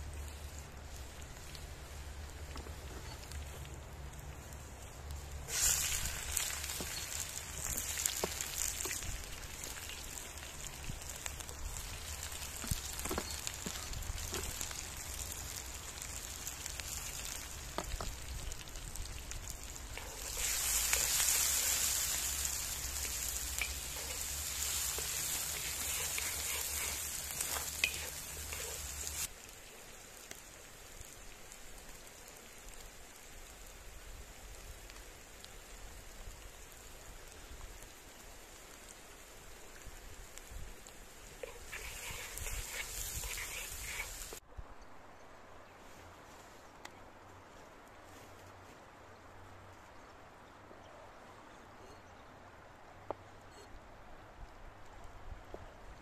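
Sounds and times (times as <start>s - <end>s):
onions sizzling in a pan: 0.0s - 44.4s
wooden spatula stirring: 19.8s - 29.3s, 41.4s - 44.4s.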